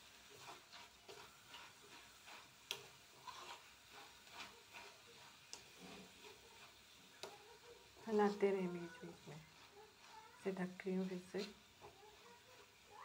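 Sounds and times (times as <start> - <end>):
metal spoon scraping iron pan: 0.2 - 7.4.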